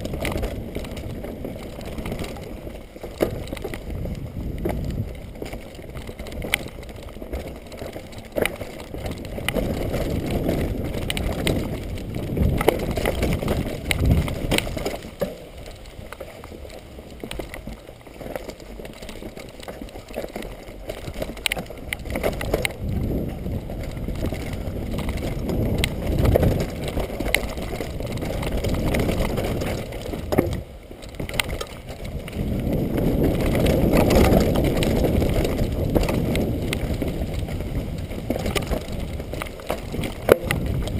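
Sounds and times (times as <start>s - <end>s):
bike knocks and rattles: 0.0s - 40.9s
tyres rolling over dirt and leaves: 0.0s - 40.9s
wind rushing over microphone: 3.5s - 6.8s, 8.9s - 15.0s, 21.8s - 40.9s.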